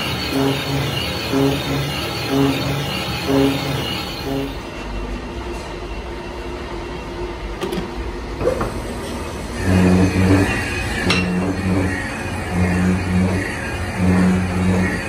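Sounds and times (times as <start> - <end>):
metal lathe running: 0.0 - 4.9, 9.4 - 15.0.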